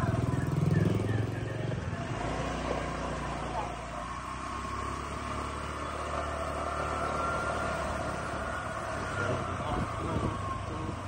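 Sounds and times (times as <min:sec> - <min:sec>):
motorcycle engine running: 0:00.0 - 0:11.0
road and wind noise: 0:00.0 - 0:11.0.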